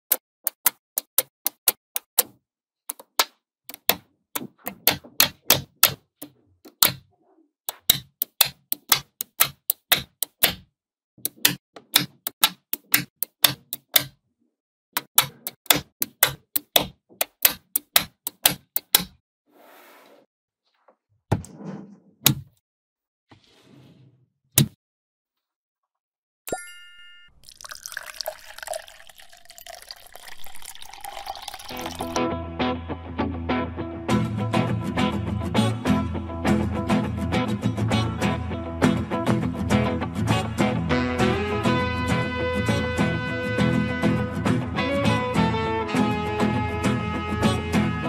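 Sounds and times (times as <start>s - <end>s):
magnetic balls clicking: 7.7s - 10.6s.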